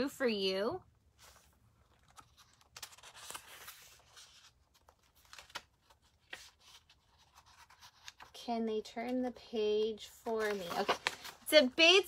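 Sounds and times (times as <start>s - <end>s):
paper pages turning: 1.2s - 9.4s, 10.2s - 11.7s.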